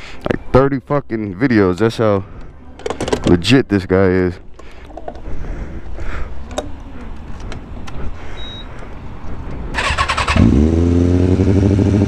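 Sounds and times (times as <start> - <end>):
traffic rumble: 0.0 - 12.0
motorcycle starter cranking: 9.8 - 10.6.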